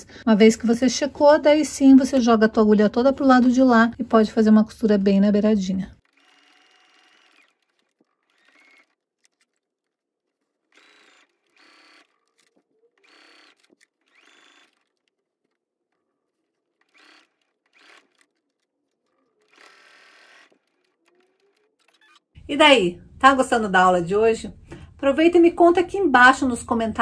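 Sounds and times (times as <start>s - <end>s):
sewing machine stitching: 6.0s - 22.4s.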